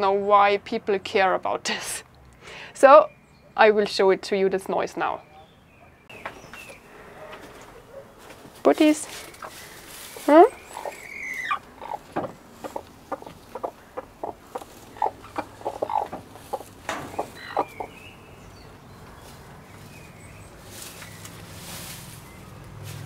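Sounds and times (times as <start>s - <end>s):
hen clucking: 9.1s - 19.5s.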